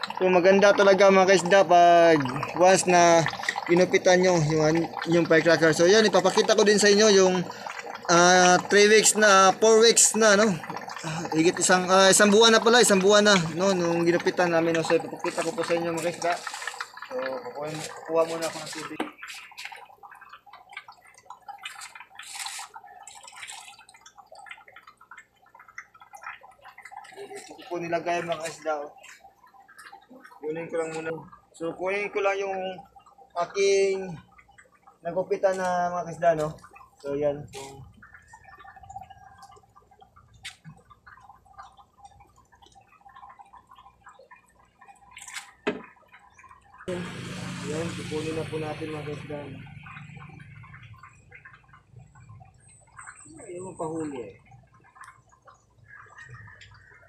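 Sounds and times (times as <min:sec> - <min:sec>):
water sloshing and splashing: 0:00.0 - 0:57.0.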